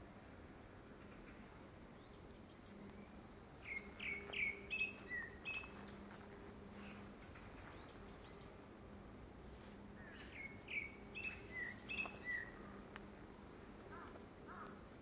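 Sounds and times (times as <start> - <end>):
thrush singing whistled notes: 3.0 - 6.0, 10.2 - 12.6.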